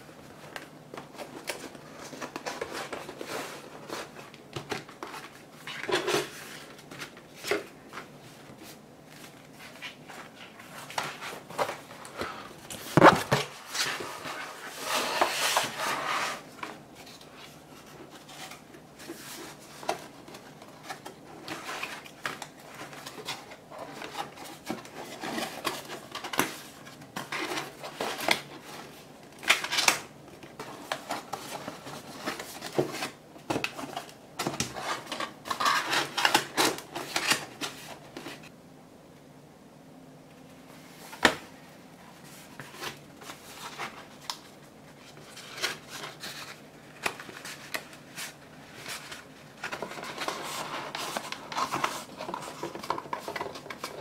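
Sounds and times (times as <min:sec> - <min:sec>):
cardboard rustling and scraping: 0:00.3 - 0:38.5, 0:40.8 - 0:54.0.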